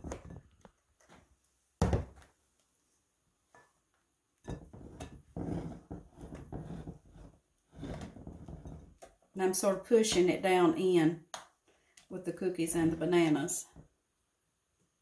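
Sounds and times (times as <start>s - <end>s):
spatula scraping glass bowl: 4.5s - 9.0s.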